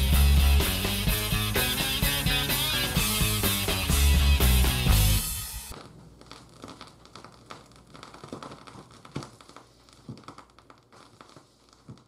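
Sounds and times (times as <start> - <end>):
crinkling rustles: 5.7 - 12.0.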